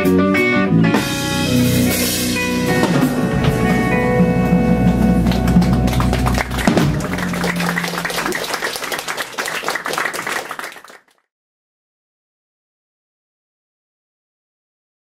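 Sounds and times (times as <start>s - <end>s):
rock trio playing: 0.0s - 8.6s
people clapping: 4.8s - 11.2s.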